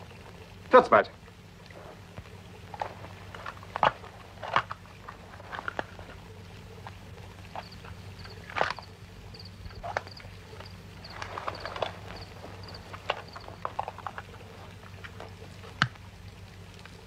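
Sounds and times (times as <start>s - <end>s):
film soundtrack hum and hiss: 0.0s - 17.0s
clothing rustle: 9.7s - 15.8s.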